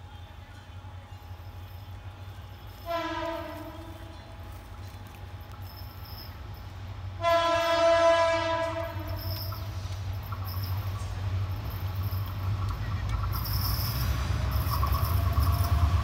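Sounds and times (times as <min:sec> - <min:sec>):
train rumble: 0:00.0 - 0:16.0
locomotive horn blast: 0:02.7 - 0:04.5, 0:07.1 - 0:09.5.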